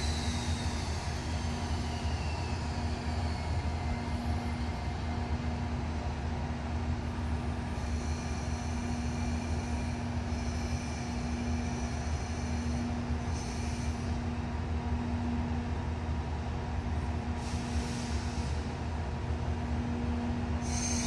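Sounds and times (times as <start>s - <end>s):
faint high whining tones: 0.0s - 5.8s
locomotive engines droning: 0.0s - 21.0s.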